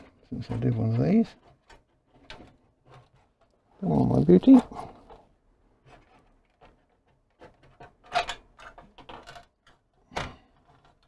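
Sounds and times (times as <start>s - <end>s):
plastic clips clicking and scraping: 0.0s - 11.0s.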